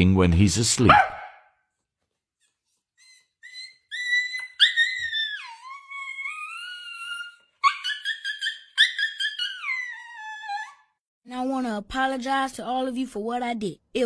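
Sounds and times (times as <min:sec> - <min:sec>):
dog whining and howling: 0:03.0 - 0:11.0.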